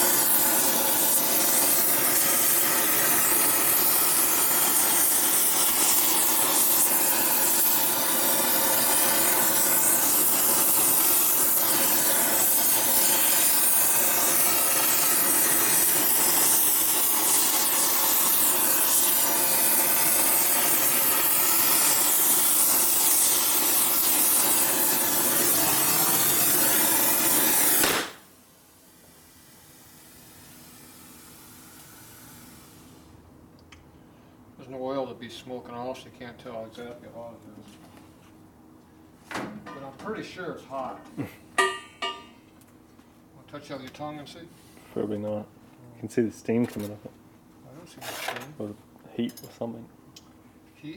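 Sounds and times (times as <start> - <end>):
gas torch flame hissing: 0.0 - 33.2.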